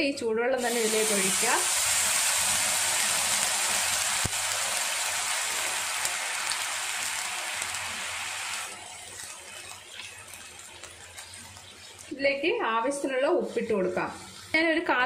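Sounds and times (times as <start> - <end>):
millet sizzling and bubbling: 0.6 - 15.0
wooden spatula stirring: 9.0 - 12.1.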